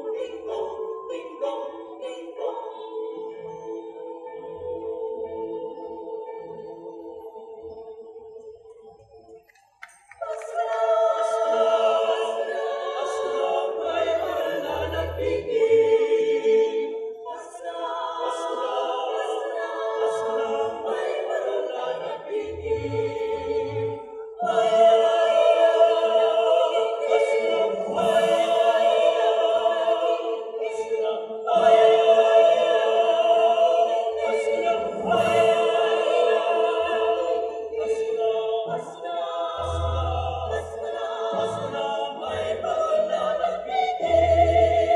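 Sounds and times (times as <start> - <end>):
mixed choir singing in harmony: 0.0 - 44.9.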